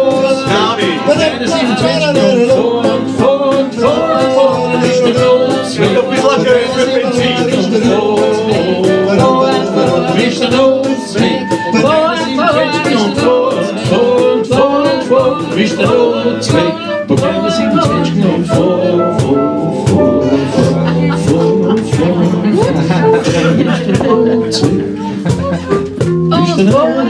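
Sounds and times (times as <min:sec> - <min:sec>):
acoustic guitars strummed: 0:00.0 - 0:27.0
bending lead melody: 0:00.0 - 0:27.0.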